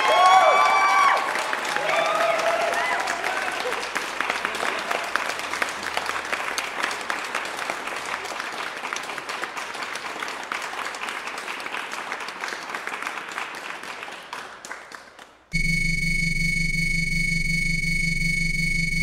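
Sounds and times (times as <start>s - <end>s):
applause: 0.0s - 15.5s.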